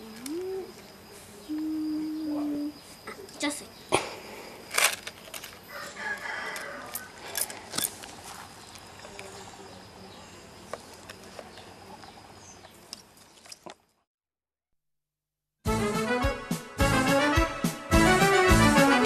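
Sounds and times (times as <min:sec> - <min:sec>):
outdoor background noise: 0:00.0 - 0:14.1.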